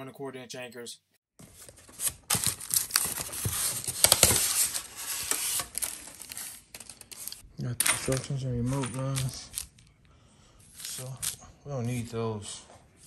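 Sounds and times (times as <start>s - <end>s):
packaging rustling and crinkling: 1.4s - 7.4s, 10.7s - 12.1s.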